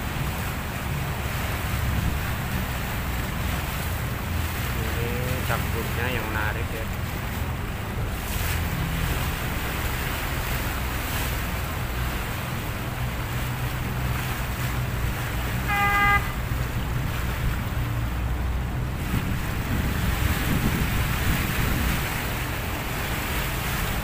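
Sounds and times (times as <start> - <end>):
wind buffeting microphone: 0.0 - 4.8, 6.8 - 24.0
speedboat engine humming: 0.0 - 24.0
water churning: 0.0 - 24.0
short horn blast: 15.6 - 16.6.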